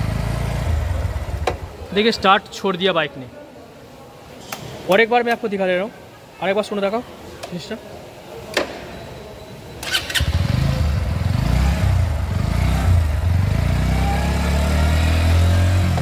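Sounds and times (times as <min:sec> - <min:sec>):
motorcycle engine idling: 0:00.0 - 0:02.0, 0:10.2 - 0:13.7.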